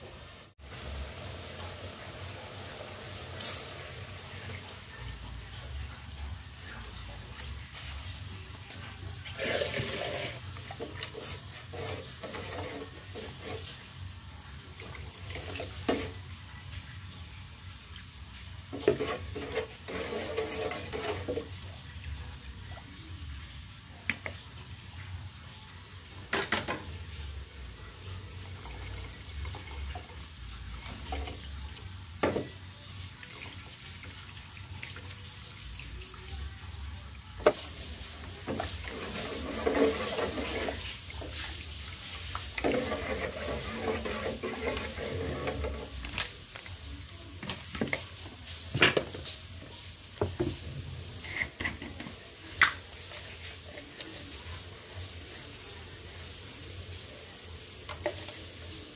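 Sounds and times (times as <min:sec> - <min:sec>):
liquid sloshing in a pot: 0:06.6 - 0:14.0, 0:18.6 - 0:22.2, 0:37.4 - 0:46.6.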